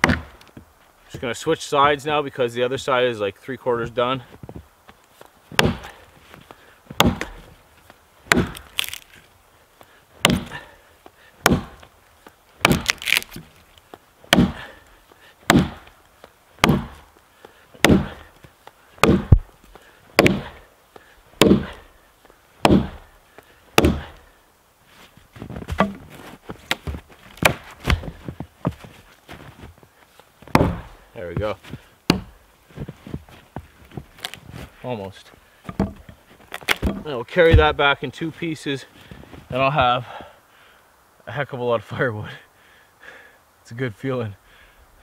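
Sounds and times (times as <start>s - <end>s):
axe chopping log: 0.0s - 0.5s, 5.5s - 6.0s, 6.9s - 7.5s, 8.3s - 9.2s, 10.2s - 10.7s, 11.4s - 11.9s, 12.6s - 13.5s, 14.3s - 14.7s, 15.5s - 15.9s, 16.6s - 17.1s, 17.8s - 18.3s, 19.0s - 19.5s, 20.2s - 20.6s, 21.4s - 21.8s, 22.6s - 23.1s, 23.7s - 24.2s, 25.7s - 28.2s, 30.5s - 31.0s, 32.1s - 32.4s, 35.7s - 37.8s
light knocks and cracks of wood: 4.3s - 9.3s, 11.4s - 14.4s, 25.4s - 34.7s, 35.6s - 37.9s.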